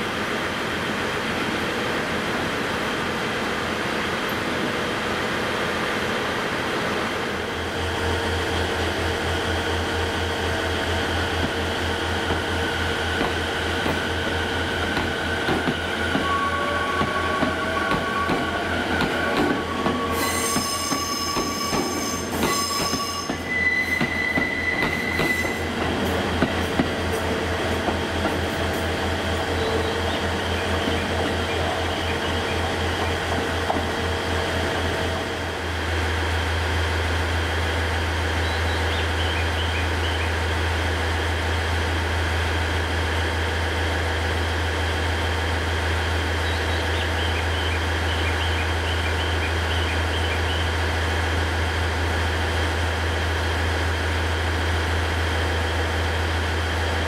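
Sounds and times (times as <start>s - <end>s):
train low hum: 0.0s - 57.0s
wheels squealing on rail: 15.1s - 26.2s.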